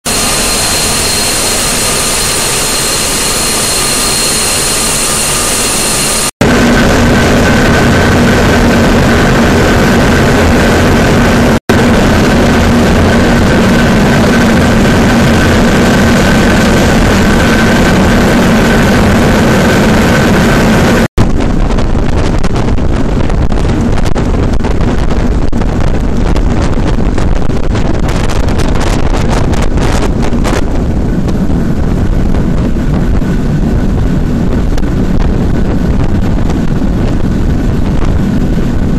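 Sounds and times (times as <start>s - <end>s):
gas turbine whining: 0.0s - 38.9s
machinery hum: 0.1s - 18.1s
wind buffeting microphone: 0.1s - 38.9s.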